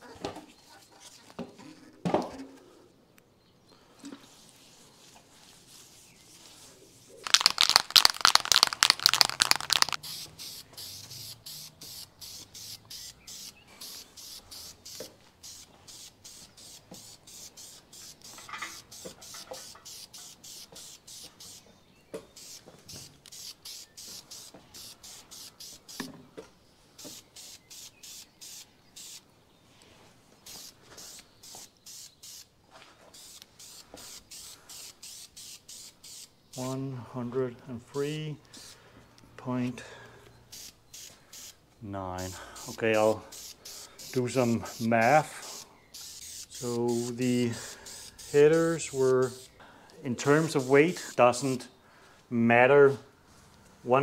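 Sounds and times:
rubbing strokes on metal: 4.2 - 7.2, 10.1 - 21.7, 50.2 - 51.6.

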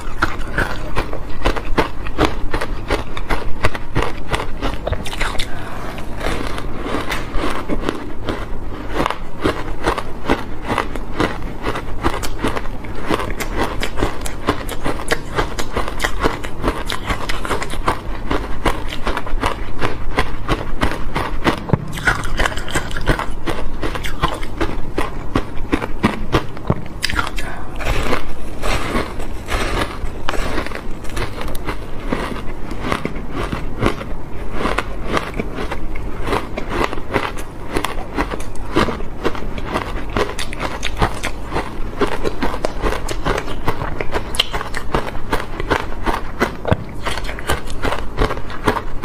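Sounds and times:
chewing ice crunches: 0.0 - 49.0.

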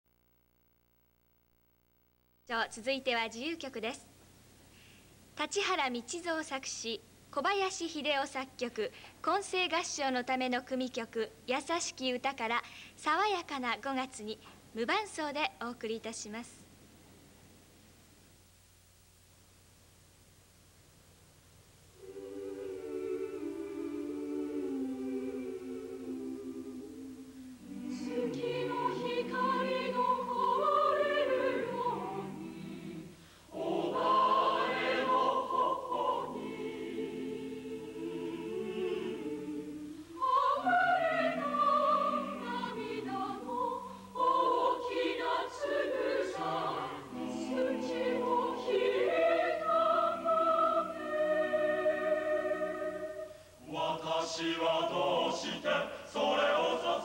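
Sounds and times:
choir singing unaccompanied: 22.0 - 57.0.

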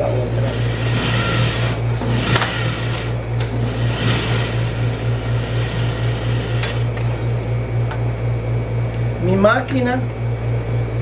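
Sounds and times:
sewing machine stitching: 0.4 - 6.9.

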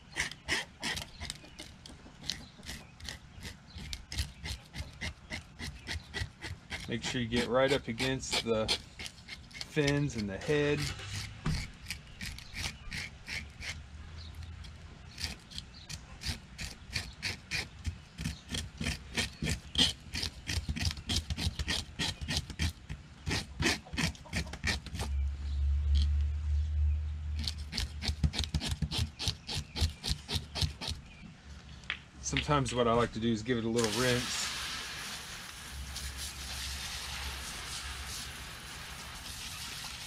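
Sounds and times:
fish scaler scraping scales: 0.0 - 25.2.

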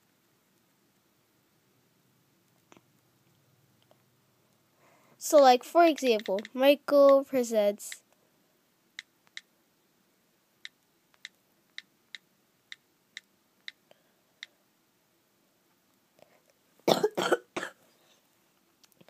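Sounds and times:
on-screen keyboard clicks: 5.9 - 7.2
person coughing: 16.9 - 17.8.

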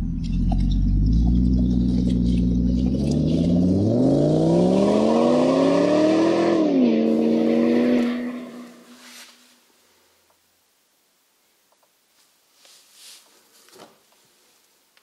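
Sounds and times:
engine revving: 0.0 - 8.9.

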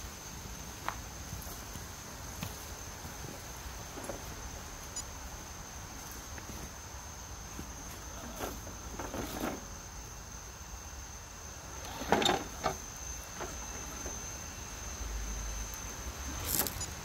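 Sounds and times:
toy truck tyres scraping on stone: 7.9 - 9.7, 11.7 - 14.2, 16.3 - 16.9.

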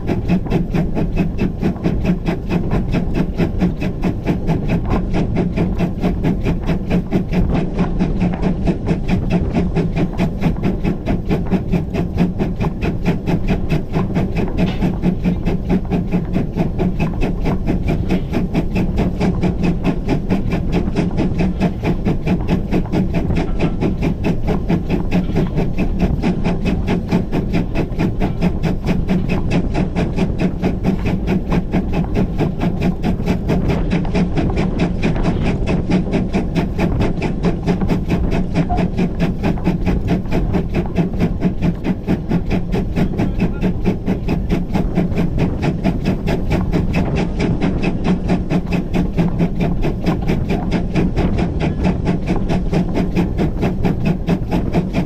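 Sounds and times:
steam locomotive beats: 0.0 - 55.0.

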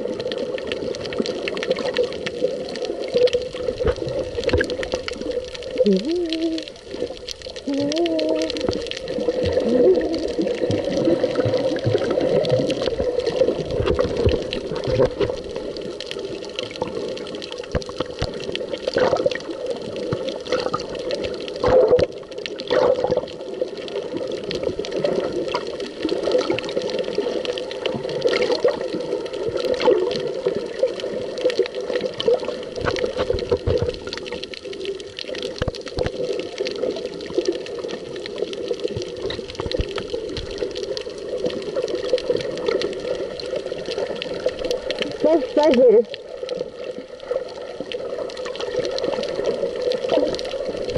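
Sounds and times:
muffled underwater sloshing: 0.0 - 50.9.

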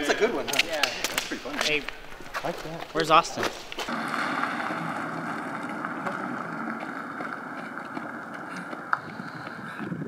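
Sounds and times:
car driving away: 3.9 - 9.0.

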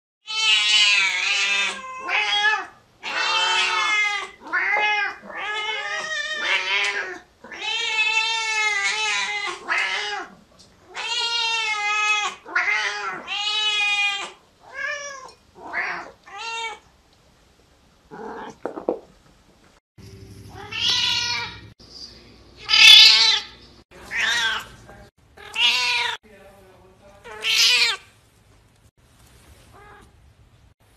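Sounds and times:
cats meowing: 0.3 - 16.8, 20.5 - 21.8, 22.6 - 24.8, 25.4 - 26.2, 27.3 - 28.0
low steady hum: 20.0 - 22.6.

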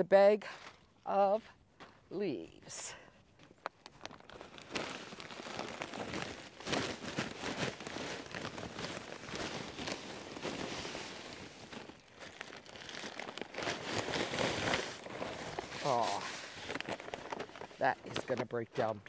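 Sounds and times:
paper bag crinkling: 3.9 - 19.0
dry leaves rustling: 4.0 - 17.8.

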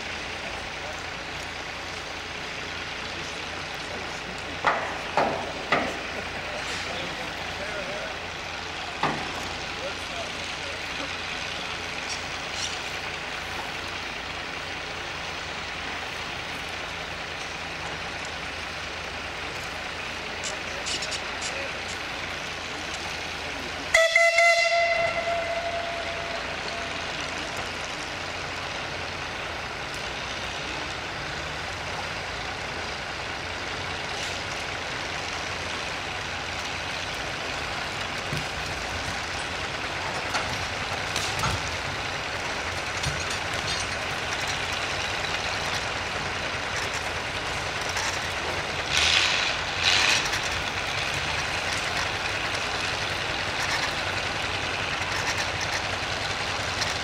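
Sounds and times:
steam engine hissing and running: 0.0 - 57.0
steam whistle blast: 23.9 - 26.6.

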